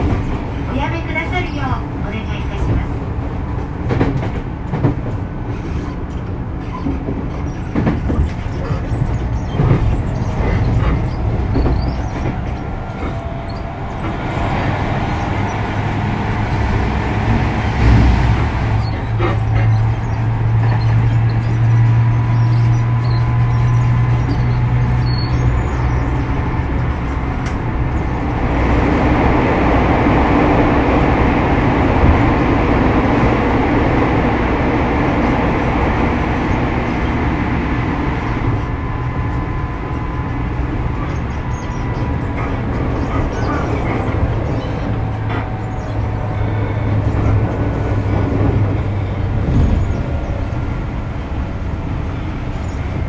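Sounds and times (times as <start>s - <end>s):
train wheels rumbling on rail: 0.0s - 53.0s.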